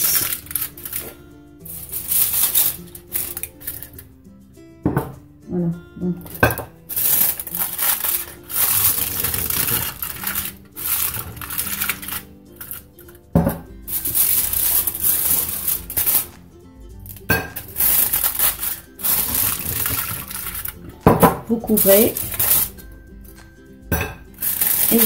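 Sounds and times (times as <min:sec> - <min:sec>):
aluminium foil crinkling: 0:00.0 - 0:04.1, 0:06.2 - 0:16.4, 0:17.0 - 0:23.6, 0:24.3 - 0:25.0
glass cups knocking on plate: 0:04.9 - 0:05.2, 0:06.3 - 0:06.7, 0:13.4 - 0:13.7, 0:21.0 - 0:21.5.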